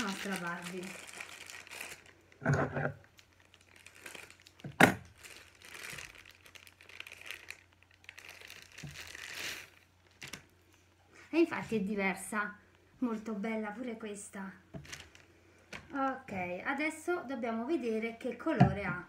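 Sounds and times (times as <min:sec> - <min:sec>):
plastic wrapper crinkling: 0:00.0 - 0:11.1, 0:14.8 - 0:16.1.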